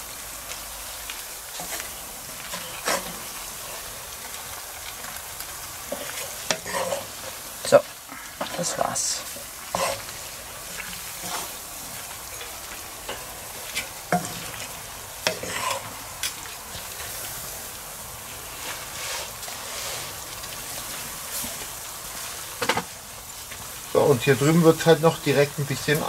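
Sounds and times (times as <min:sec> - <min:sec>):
vegetables sizzling in a skillet: 0:00.0 - 0:26.0
spatula scraping a pan: 0:01.6 - 0:03.9, 0:05.8 - 0:07.8, 0:08.4 - 0:17.3, 0:18.6 - 0:21.5.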